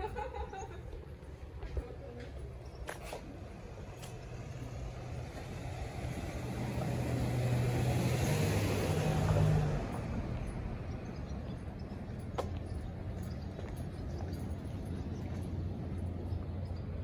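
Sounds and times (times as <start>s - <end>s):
car driving past: 4.1s - 11.8s.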